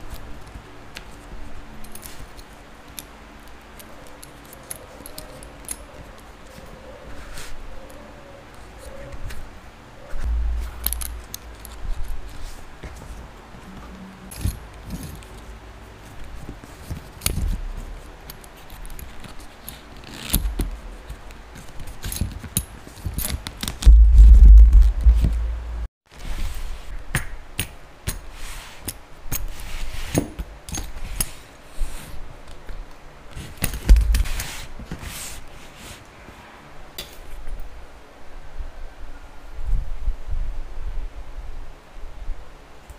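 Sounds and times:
small clicks and scrapes: 0.0 - 8.0, 13.8 - 24.0
loud low rumble: 10.2 - 11.6, 23.8 - 25.9
leather straps handled: 33.3 - 35.4.

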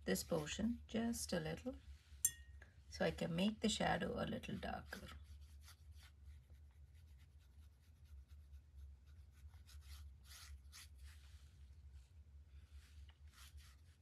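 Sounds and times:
paintbrush strokes on paper: 0.0 - 0.9, 3.8 - 14.0
low steady hum: 0.0 - 14.0.

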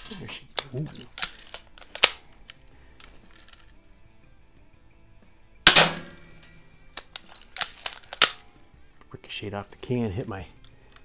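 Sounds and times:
bb pistol shot: 5.6 - 6.5
metallic ring of bb ricochet: 5.7 - 6.5.

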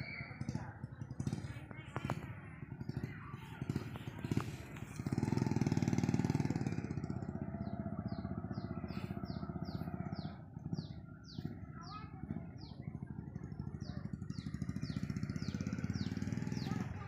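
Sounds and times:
engine humming: 0.0 - 17.0
bird chirping: 5.0 - 16.9.

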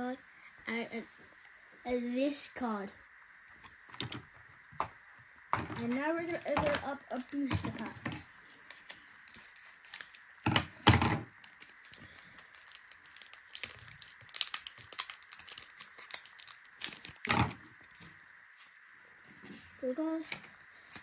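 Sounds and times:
foil pack crinkling: 8.6 - 18.2
scissors snipping foil: 12.6 - 17.3.

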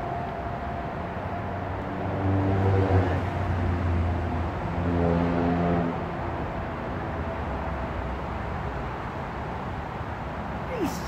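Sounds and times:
vehicle engine passing by: 1.8 - 6.1.

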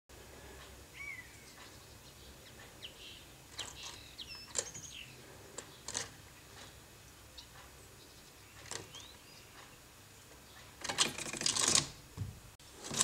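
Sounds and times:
birds chirping: 0.1 - 11.3
sharp clicks: 3.5 - 5.0, 8.5 - 9.8.

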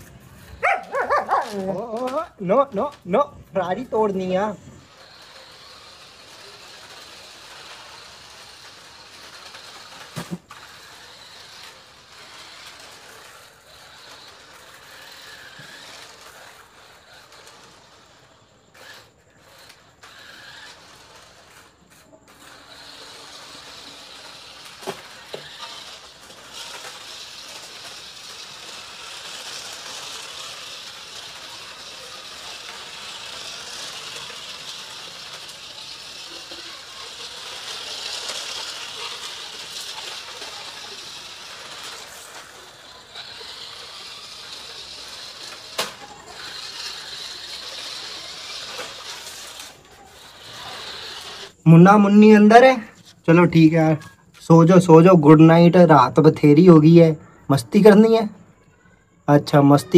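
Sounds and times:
toy car motor and gears whirring: 0.0 - 59.9
toy car knocking on concrete: 22.3 - 51.5.

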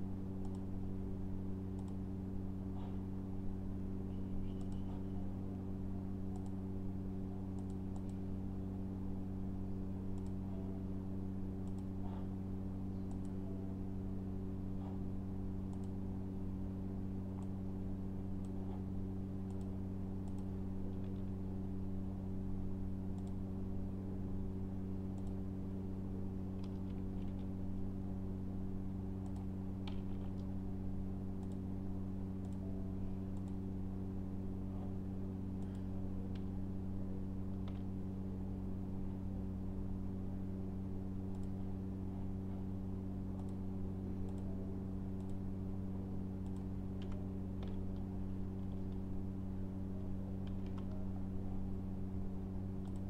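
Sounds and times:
low electrical hum: 0.0 - 53.0
mouse clicks: 0.4 - 0.7, 1.7 - 2.0, 4.4 - 5.1, 6.3 - 6.6, 7.5 - 8.2, 10.1 - 10.4, 11.6 - 12.2, 13.0 - 13.4, 15.7 - 16.0, 19.5 - 21.2, 23.2 - 23.4, 25.1 - 25.4, 32.4 - 32.7, 33.3 - 33.6, 41.3 - 41.6, 43.3 - 43.6, 45.2 - 45.4, 46.4 - 49.0, 52.8 - 53.0.

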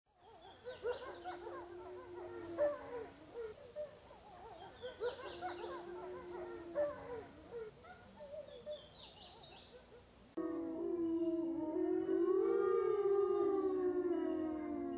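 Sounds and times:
wolves howling: 0.2 - 8.9, 10.4 - 14.9
crickets trilling: 0.4 - 10.4.

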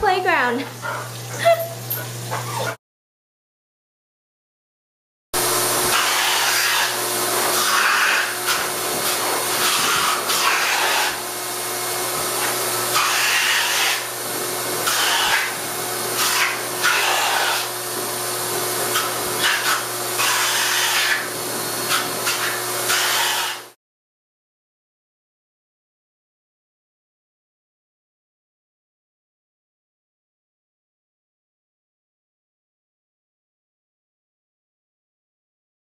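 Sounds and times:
air hose motor rushing: 5.4 - 23.8.

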